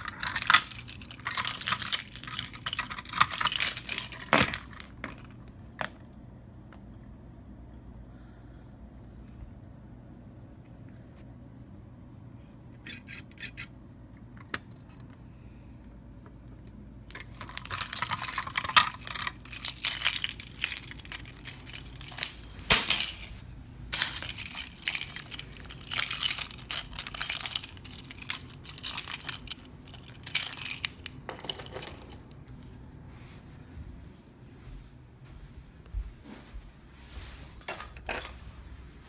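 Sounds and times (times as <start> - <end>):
keys jangling on a ring: 0.0 - 5.6, 12.8 - 13.7, 17.1 - 32.2.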